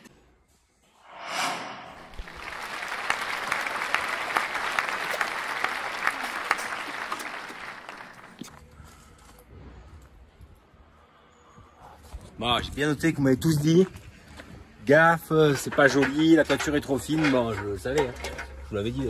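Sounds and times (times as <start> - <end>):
brief rush of noise: 1.0 - 3.4
applause: 2.2 - 8.5.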